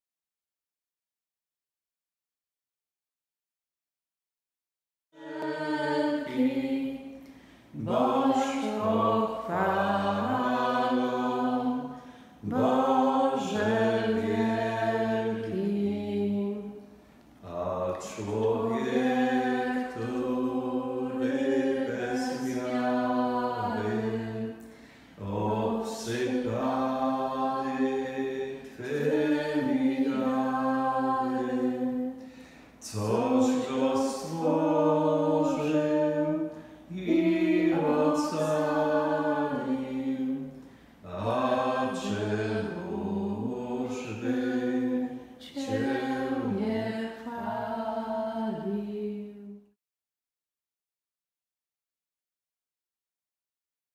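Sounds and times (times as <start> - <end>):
man singing unaccompanied chant: 17.4 - 20.6, 25.2 - 30.7, 32.8 - 36.3, 41.0 - 44.7.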